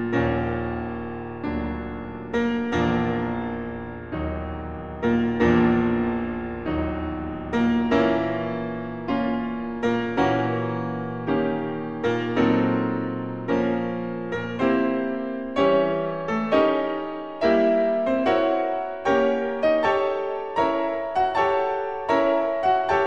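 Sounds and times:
slow piano music: 0:00.0 - 0:23.0.

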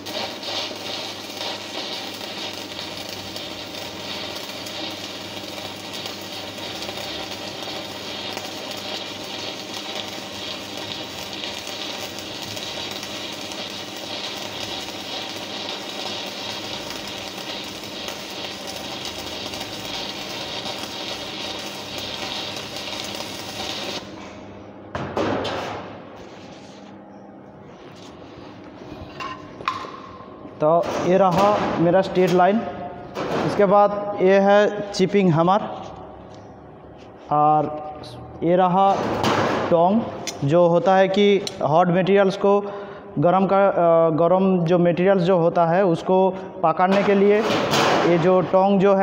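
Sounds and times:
welding arc sizzling: 0:00.0 - 0:24.2.

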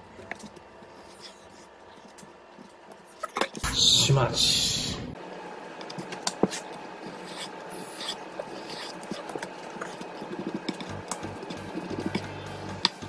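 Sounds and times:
knife scraping: 0:06.4 - 0:11.0.

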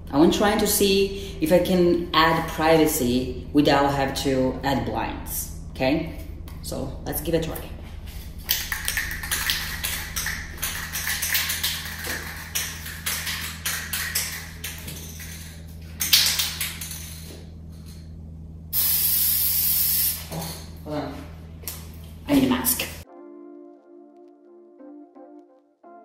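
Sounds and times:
aerosol spray can hissing: 0:18.8 - 0:20.3.

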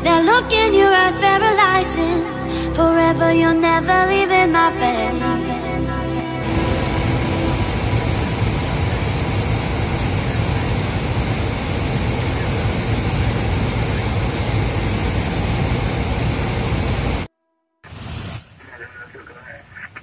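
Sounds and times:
low engine hum: 0:06.3 - 0:17.3
air and rain streaming over windshield: 0:06.4 - 0:17.3.

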